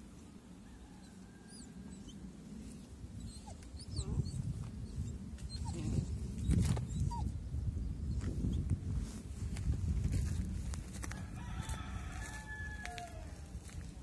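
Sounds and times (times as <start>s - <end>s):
puppy whining: 3.2s - 7.3s.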